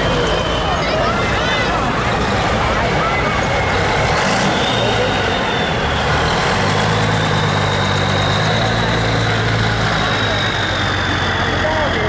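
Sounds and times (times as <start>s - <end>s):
fire engine engine hum: 0.0s - 12.0s.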